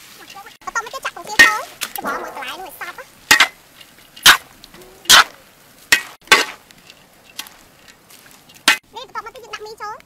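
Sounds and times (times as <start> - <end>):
metal spatula scraping wok: 0.0 - 7.1.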